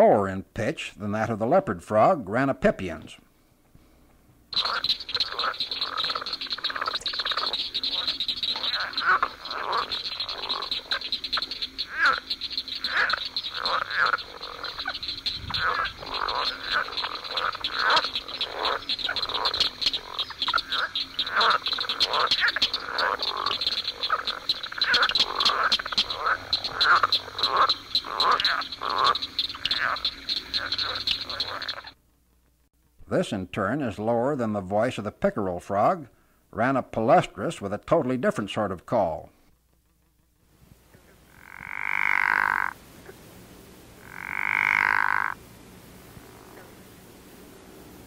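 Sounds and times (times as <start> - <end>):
frog rattling croaks: 4.5 - 32.0, 41.0 - 43.2, 44.0 - 45.4, 46.1 - 46.7
high-pitched frog chorus: 4.5 - 32.0, 41.2 - 43.2, 44.0 - 45.4, 46.1 - 46.7.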